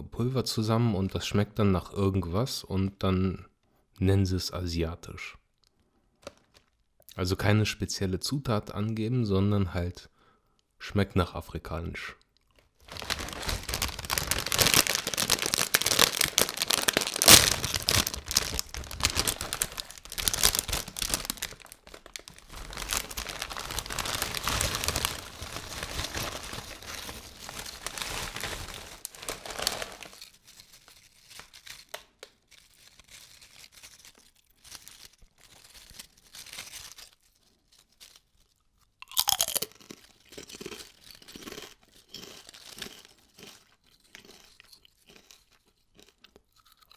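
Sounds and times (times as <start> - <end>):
crisp packet crinkling: 6.2 - 6.8, 12.4 - 46.8
crisps rustling into a hand: 6.2 - 6.9, 12.5 - 46.8.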